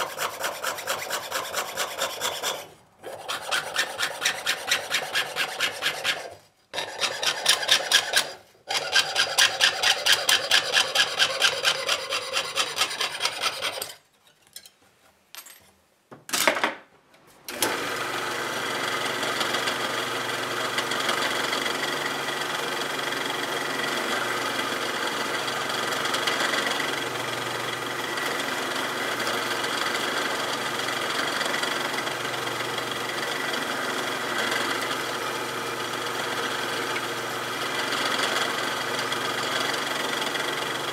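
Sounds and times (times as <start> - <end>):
saw cutting metal sheet: 0.0 - 14.0
drill press drilling metal: 20.8 - 32.2, 32.8 - 40.9.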